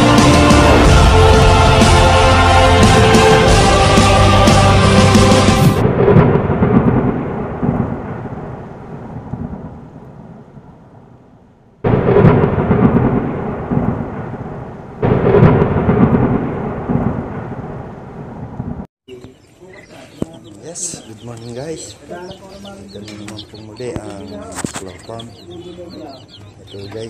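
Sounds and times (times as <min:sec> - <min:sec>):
music: 0:00.0 - 0:05.8
deep thunder-like rumbles: 0:00.0 - 0:11.2, 0:11.8 - 0:18.9.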